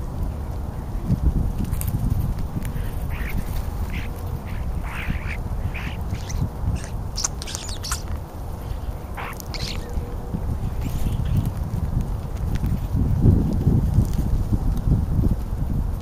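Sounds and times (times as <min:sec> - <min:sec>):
starlings giving harsh calls: 0:02.6 - 0:11.6.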